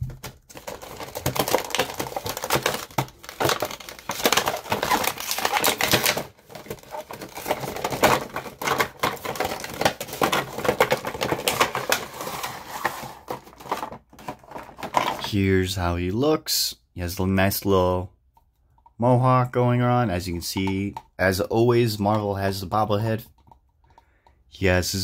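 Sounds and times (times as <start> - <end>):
plastic and card crinkling: 0.0 - 15.4.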